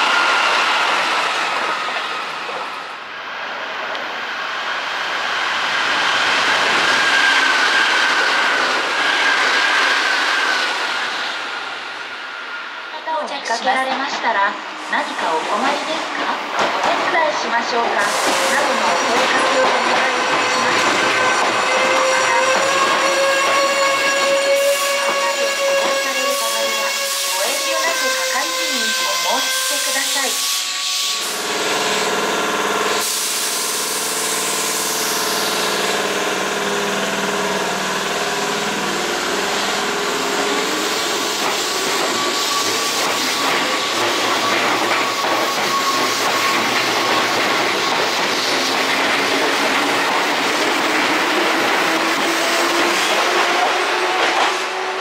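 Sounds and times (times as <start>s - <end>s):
train wheels rumbling on rails: 13.6s - 55.0s
train motor whine: 18.0s - 55.0s
hiss: 33.0s - 34.9s.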